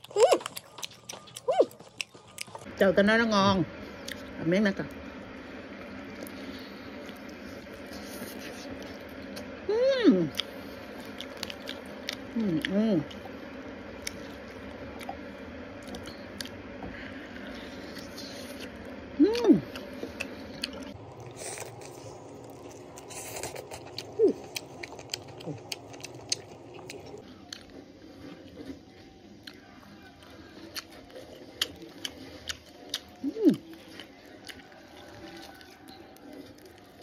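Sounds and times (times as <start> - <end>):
chewing and mouth smacks: 0.0 - 2.7, 10.3 - 13.2, 19.6 - 28.8, 29.4 - 37.0
person humming: 9.7 - 10.4, 12.4 - 13.1, 19.2 - 19.8, 33.2 - 33.7
meat tearing: 30.8 - 37.0.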